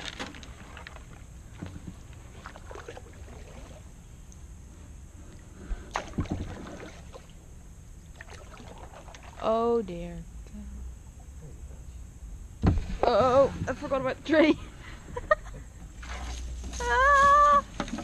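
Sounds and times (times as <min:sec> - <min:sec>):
paddle splashing in water: 0:02.3 - 0:03.9, 0:05.9 - 0:07.4, 0:08.1 - 0:09.4, 0:15.9 - 0:16.8.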